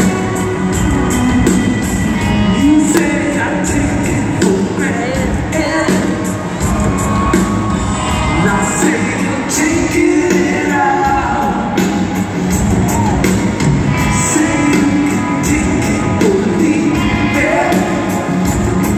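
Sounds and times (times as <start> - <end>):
live rock band playing: 0.0 - 18.9
person singing into microphone: 2.5 - 6.4, 8.2 - 12.2, 14.0 - 18.5.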